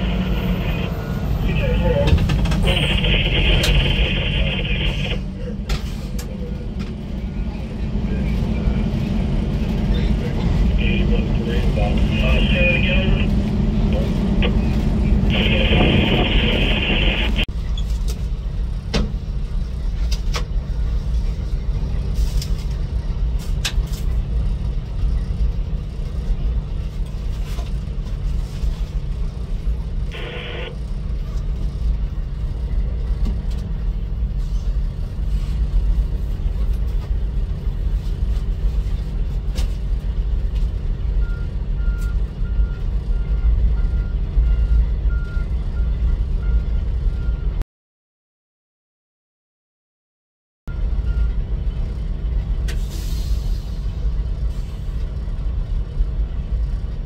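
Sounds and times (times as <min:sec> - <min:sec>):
train cab rumble: 0:00.0 - 0:41.0.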